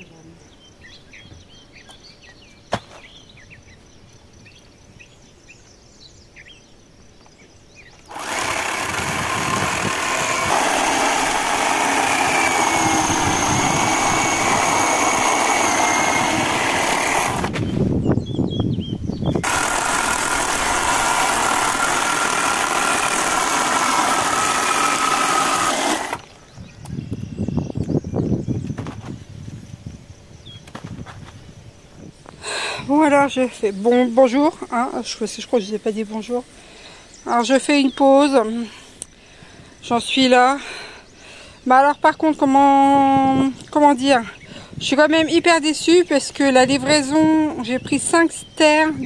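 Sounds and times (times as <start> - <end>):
electric chainsaw cutting log: 8.0 - 17.6, 19.4 - 26.4.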